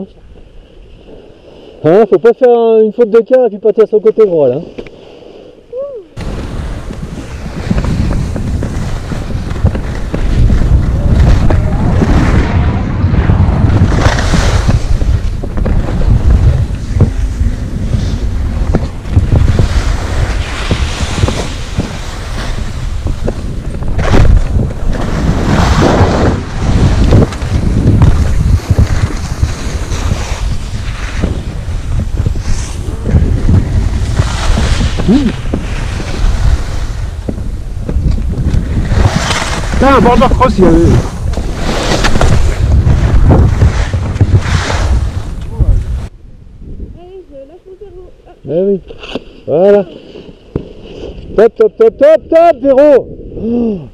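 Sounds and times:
skis hissing and scraping on snow: 0:04.4 - 0:12.6, 0:13.8 - 0:46.1, 0:48.9 - 0:51.4
wind buffeting microphone: 0:05.7 - 0:48.8.

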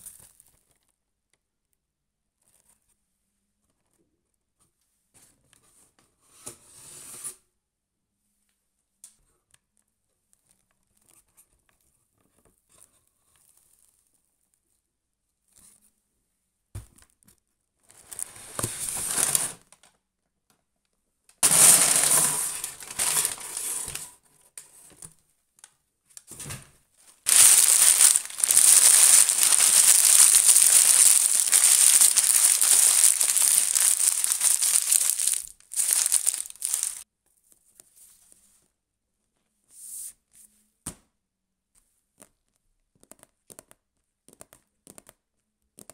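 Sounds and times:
paper rustling and crinkling: 0:18.0 - 0:19.6, 0:21.4 - 0:24.1, 0:27.3 - 0:37.0.

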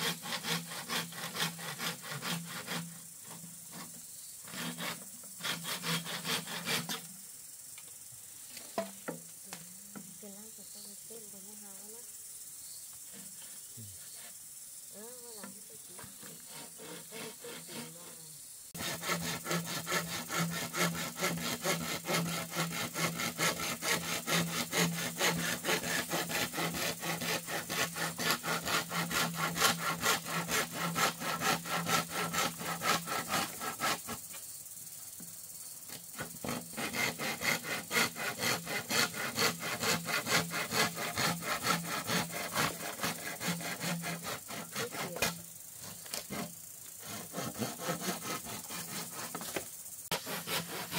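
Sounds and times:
hand saw cutting bamboo: 0:00.0 - 0:07.1, 0:15.5 - 0:18.2, 0:18.8 - 0:34.4, 0:35.9 - 0:50.9.

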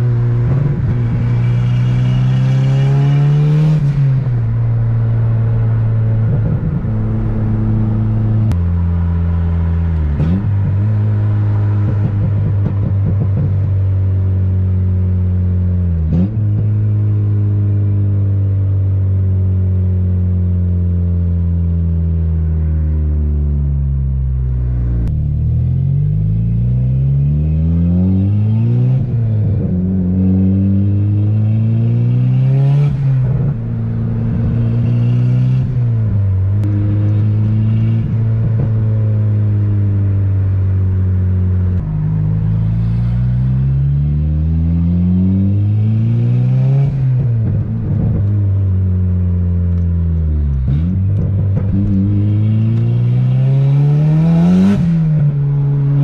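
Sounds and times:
car engine accelerating hard: 0:00.0 - 0:20.2, 0:21.2 - 0:56.0
sharp exhaust pops: 0:11.8 - 0:13.9, 0:50.5 - 0:53.0.

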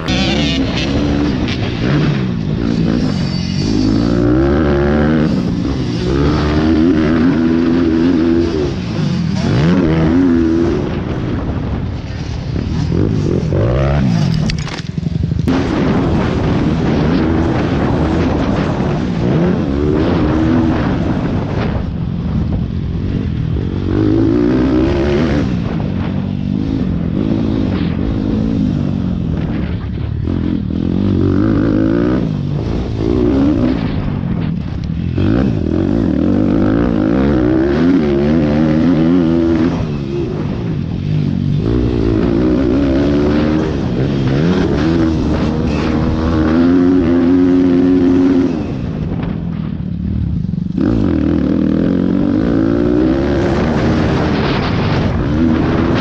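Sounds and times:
minibike engine revving: 0:00.0 - 0:21.9, 0:34.9 - 0:49.3, 0:50.7 - 0:56.0.

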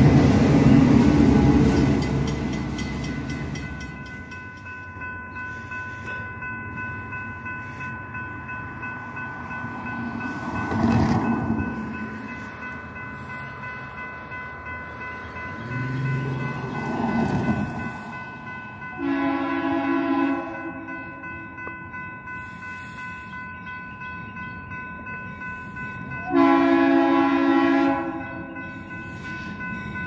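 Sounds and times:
crossing warning bell ringing: 0:00.0 - 0:30.0
passing train rush: 0:00.0 - 0:30.0
faint locomotive horn: 0:19.0 - 0:20.9, 0:26.3 - 0:28.3.

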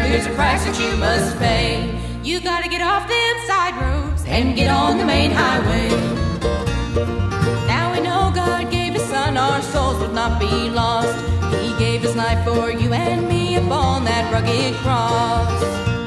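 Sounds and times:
bluegrass band playing: 0:00.0 - 0:03.0, 0:03.7 - 0:16.0
women singing: 0:00.0 - 0:06.3, 0:07.7 - 0:15.6.

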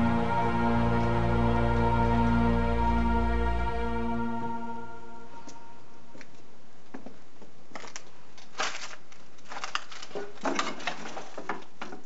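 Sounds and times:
rustling: 0:06.2 - 0:12.0.

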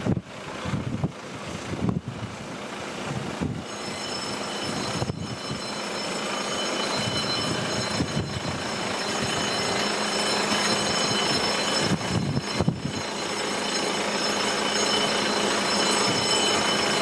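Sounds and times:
wind buffeting the microphone: 0:00.0 - 0:03.6, 0:07.0 - 0:09.5, 0:11.8 - 0:13.0
high-pitched whine: 0:02.6 - 0:17.0.

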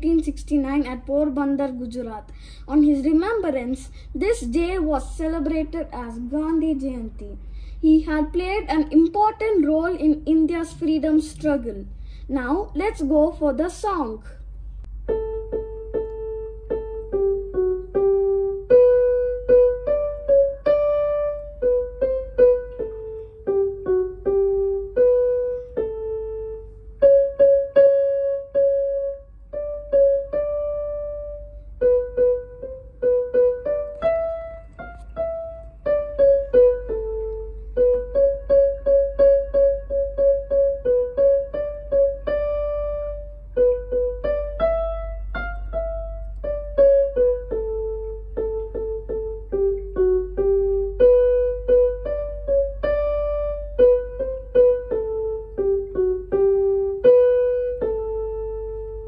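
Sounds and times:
keyboard playing slow piano melody: 0:14.8 - 0:59.0.

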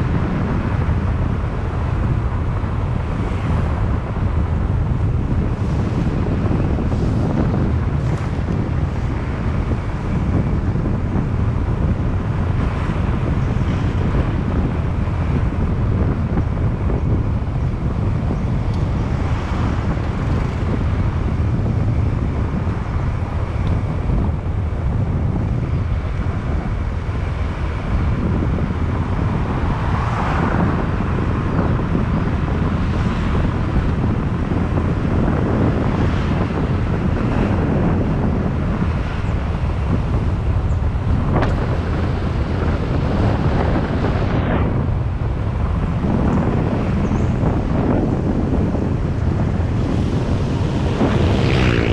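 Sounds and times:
road noise: 0:00.0 - 0:51.9
wind buffeting microphone: 0:00.0 - 0:51.9
motorbike engine: 0:48.7 - 0:51.9.

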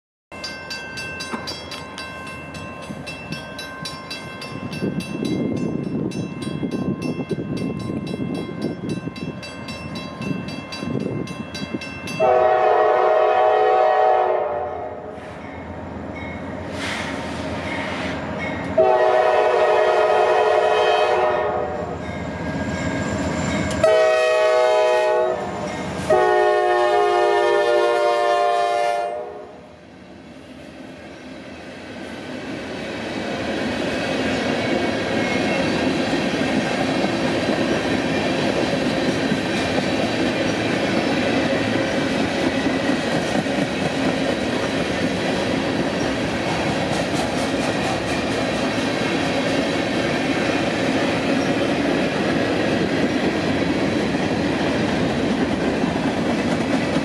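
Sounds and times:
locomotive air horn blasts: 0:12.2 - 0:15.3, 0:18.8 - 0:22.0, 0:23.8 - 0:29.6.

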